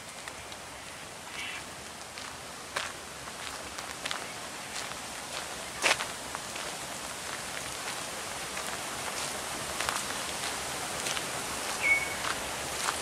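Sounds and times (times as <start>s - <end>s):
running creek water: 0.0s - 13.0s
footsteps crunching on gravel: 2.0s - 13.0s
short high whistle: 11.8s - 12.3s.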